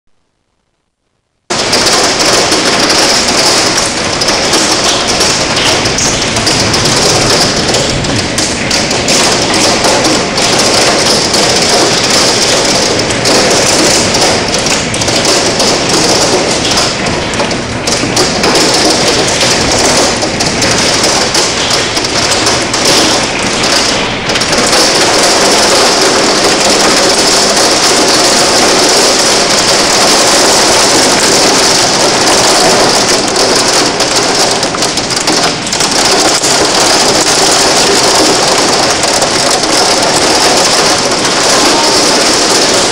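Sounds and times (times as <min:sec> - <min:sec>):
hail pelting window and roof: 0:01.5 - 0:42.9.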